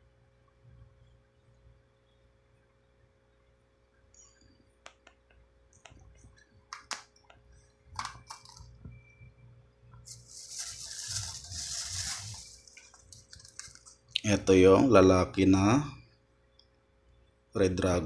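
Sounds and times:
plastic rustling: 10.0s - 14.2s
plastic bags crinkling: 10.1s - 14.2s.

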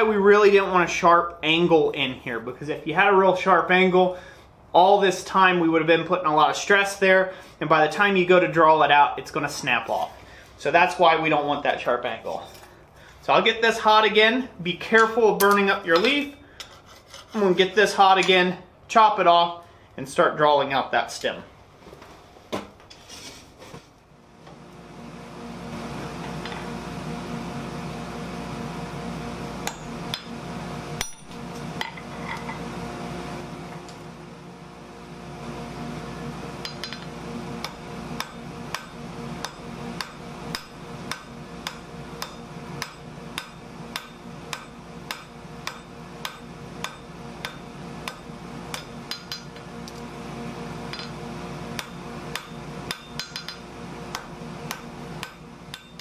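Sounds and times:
forge hum: 22.5s - 56.0s
hammer striking steel on anvil: 29.6s - 30.4s, 31.0s - 32.5s, 36.6s - 50.0s, 50.9s - 56.0s.

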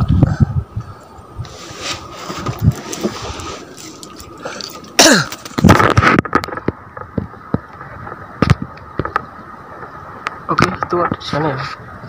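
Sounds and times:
man coughing: 5.0s - 5.4s.

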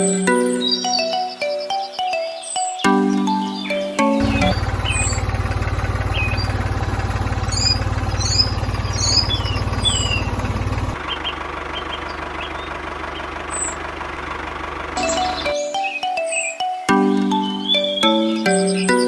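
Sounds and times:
tractor engine chugging: 2.9s - 16.6s
short high chirps: 15.0s - 19.0s.

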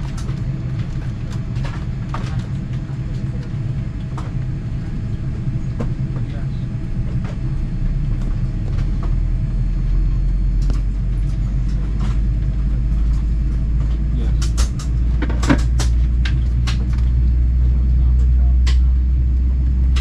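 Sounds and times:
airliner cabin low rumble: 0.0s - 20.0s
sharp clicks and knocks: 13.0s - 17.1s.

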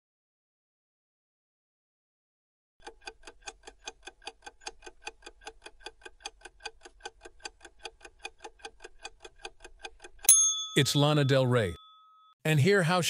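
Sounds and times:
clock ticking fast: 2.8s - 11.7s.

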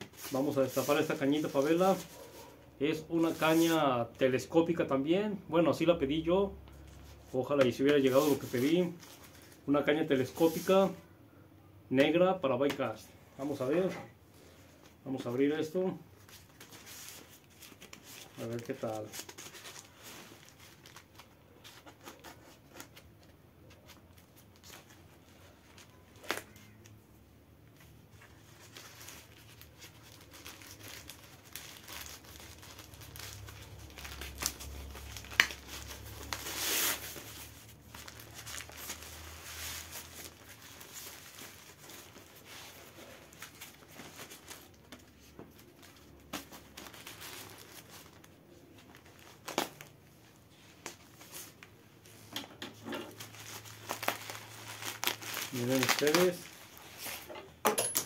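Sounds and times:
plastic bag crinkling and tearing: 16.2s - 23.0s, 28.2s - 50.0s, 53.1s - 57.3s.

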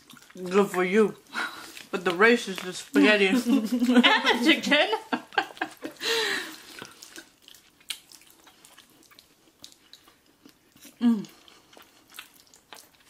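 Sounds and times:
chewing smacks and clicks: 0.0s - 0.8s, 6.7s - 13.0s.

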